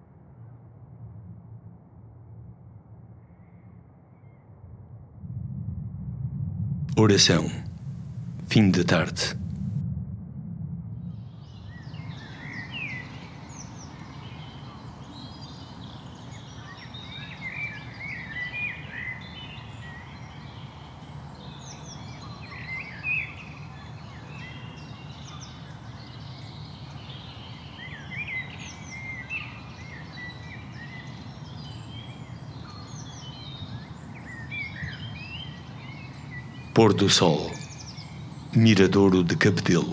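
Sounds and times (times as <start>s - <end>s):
low outdoor rumble: 5.3s - 9.8s
small birds chirping: 36.5s - 39.9s.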